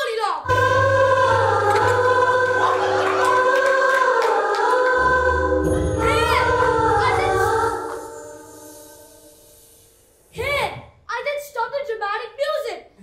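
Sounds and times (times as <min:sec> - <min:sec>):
young voices singing together: 0:00.4 - 0:09.2.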